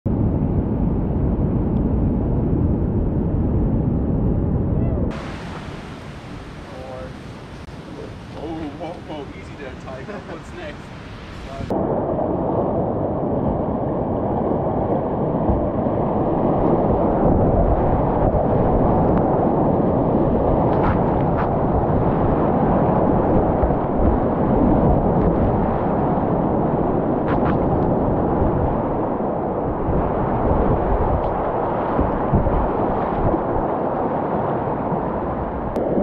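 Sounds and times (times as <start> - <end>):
whitewater rapids rushing: 5.1 - 11.7.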